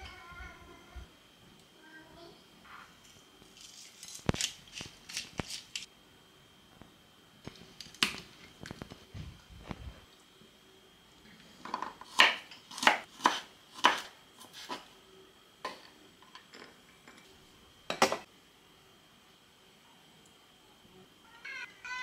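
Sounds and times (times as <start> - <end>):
knife chopping on wooden board: 12.1 - 14.8.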